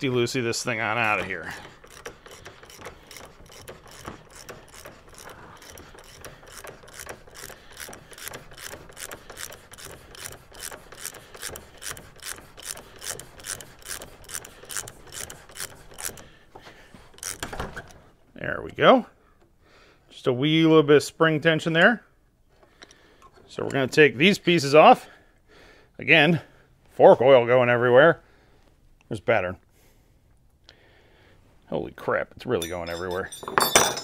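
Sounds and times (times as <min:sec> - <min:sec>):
ratchet wrench clicking: 0:01.0 - 0:16.3, 0:17.2 - 0:17.5.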